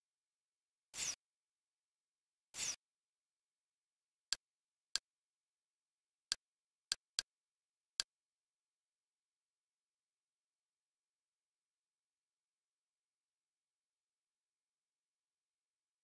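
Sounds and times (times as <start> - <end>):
interface swish: 1.0 - 1.2, 2.6 - 2.8.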